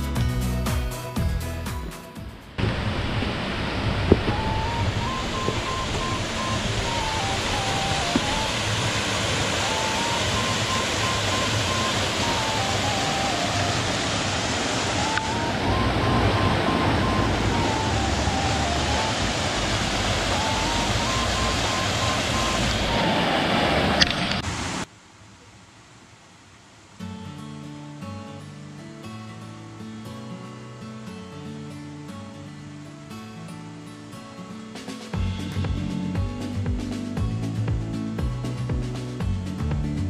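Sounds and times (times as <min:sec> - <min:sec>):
rushing water: 0:02.5 - 0:40.0
simple background music: 0:04.0 - 0:24.1, 0:30.8 - 0:40.0.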